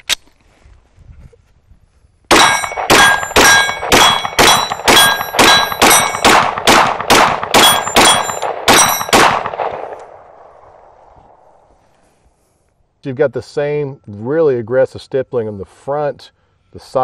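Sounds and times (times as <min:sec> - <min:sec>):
pistol shots with metallic ring: 0:02.3 - 0:10.0.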